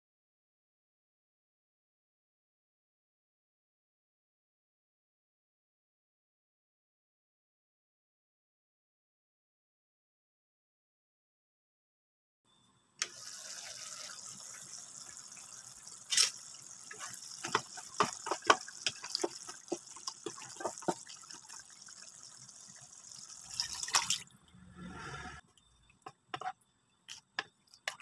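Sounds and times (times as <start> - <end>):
liquid being poured: 13.0 - 26.1
meat sizzling in a pan: 13.1 - 23.5
wooden spatula scraping a pan: 16.1 - 21.4, 26.3 - 26.6.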